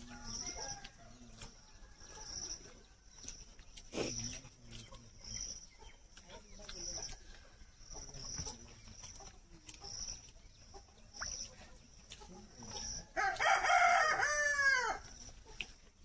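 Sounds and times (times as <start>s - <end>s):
faint high chirp: 11.0s - 11.8s
rooster crowing: 13.2s - 15.0s.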